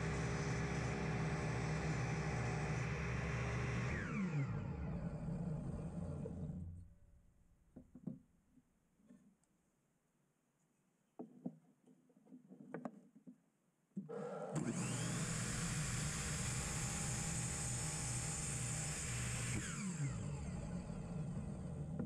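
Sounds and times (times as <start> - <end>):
miter saw cutting wood: 0.0 - 6.6, 14.1 - 22.0.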